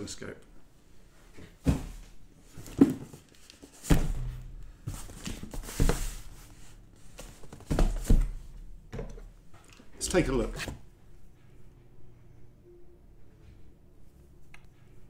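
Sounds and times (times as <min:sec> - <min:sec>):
cardboard box thumps: 0:01.6 - 0:03.2, 0:03.8 - 0:06.3, 0:07.4 - 0:08.4.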